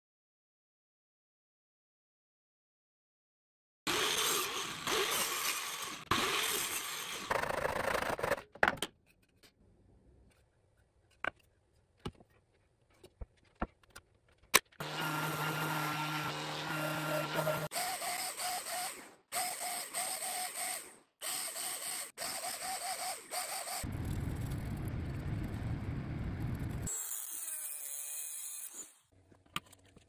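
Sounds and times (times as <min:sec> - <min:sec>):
miter saw cutting board: 0:03.9 - 0:08.4, 0:14.8 - 0:23.9
orbital sander humming: 0:14.8 - 0:17.8.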